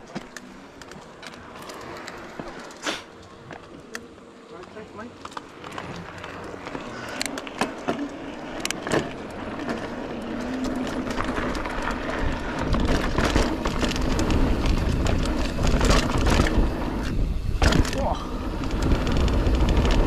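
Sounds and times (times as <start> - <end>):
bike rattling and clicking: 0.0 - 20.0
wind buffeting microphone: 8.5 - 20.0.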